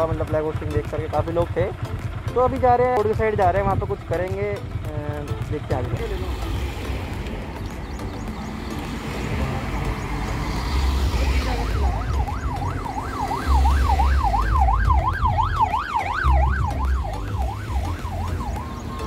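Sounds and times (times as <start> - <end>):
cars passing rumble: 0.0 - 19.0
vehicle siren wailing: 8.9 - 19.0.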